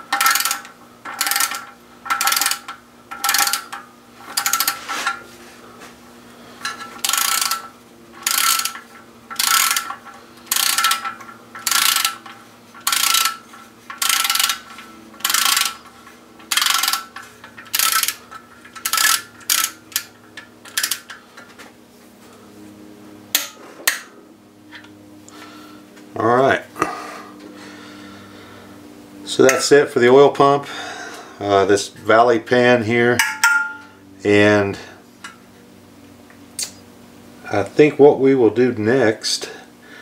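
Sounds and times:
socket ratchet wrench clicking: 0:00.1 - 0:03.8, 0:04.4 - 0:04.8, 0:07.0 - 0:14.6, 0:15.2 - 0:15.8, 0:16.5 - 0:20.1, 0:20.7 - 0:21.2.

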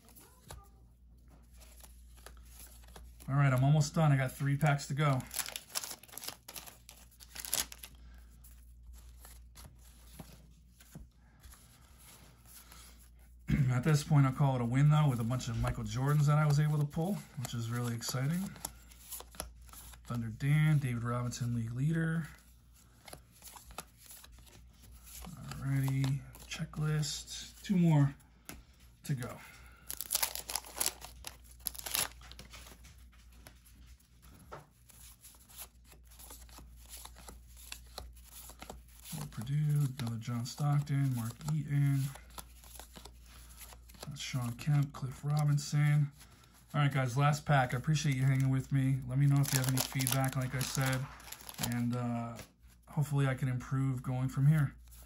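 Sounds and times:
cards sliding and ticking: 0:01.4 - 0:03.8, 0:04.4 - 0:13.0, 0:15.2 - 0:20.1, 0:22.8 - 0:45.7, 0:47.8 - 0:52.5
paper wrapper rustling: 0:04.4 - 0:10.6, 0:29.2 - 0:44.6, 0:47.7 - 0:52.5
wrapper crinkling: 0:05.1 - 0:07.9, 0:29.8 - 0:32.8, 0:47.9 - 0:52.0.

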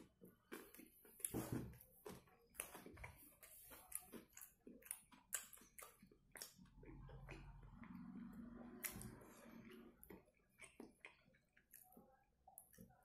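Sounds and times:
close-up chewing: 0:00.0 - 0:13.0
low steady hum: 0:05.8 - 0:11.8.

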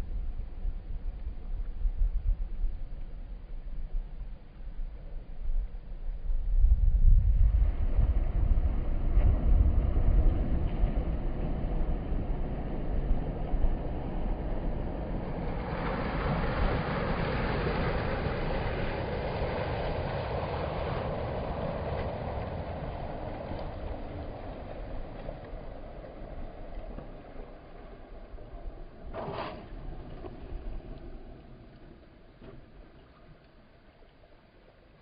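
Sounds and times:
wind rumbling on microphone: 0:00.0 - 0:35.0
waves washing over rocky shore: 0:08.0 - 0:32.0.

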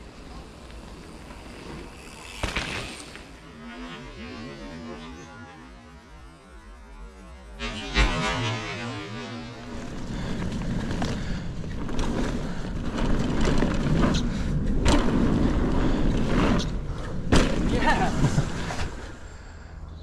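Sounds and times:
bike tyre and wind noise: 0:00.0 - 0:19.9.

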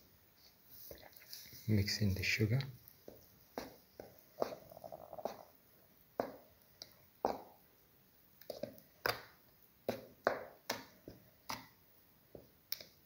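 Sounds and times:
wet batter squelches: 0:00.3 - 0:13.0.

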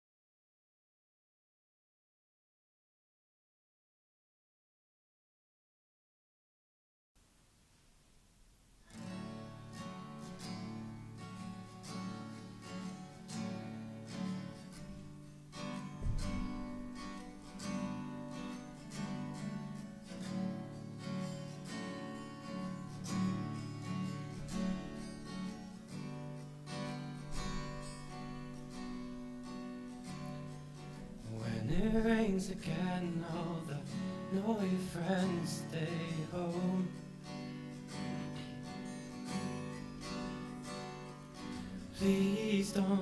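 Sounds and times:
acoustic guitar chords: 0:07.2 - 0:43.0.

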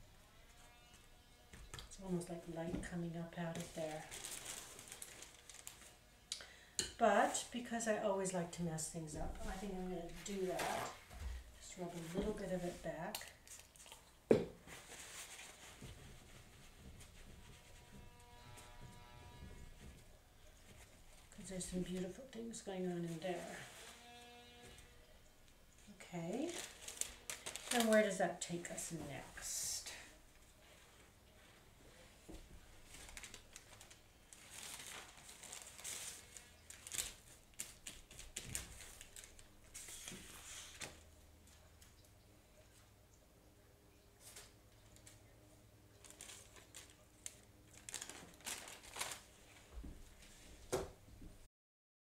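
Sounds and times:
paper rustling and crinkling: 0:01.6 - 0:06.0, 0:09.2 - 0:14.0, 0:14.6 - 0:22.2, 0:25.9 - 0:42.0, 0:45.9 - 0:50.9
paper towel rubbing: 0:14.7 - 0:22.0.

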